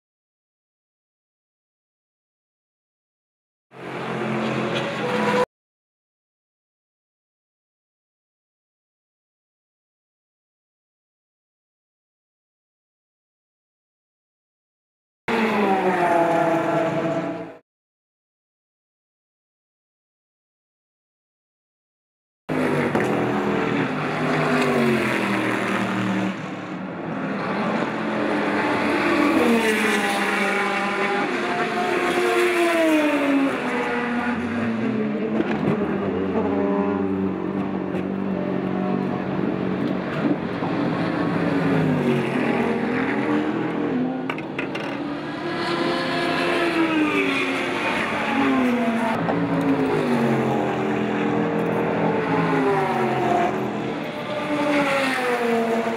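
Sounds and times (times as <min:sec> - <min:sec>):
race car engines at speed: 0:03.7 - 0:05.5, 0:15.3 - 0:17.6, 0:22.5 - 0:55.9.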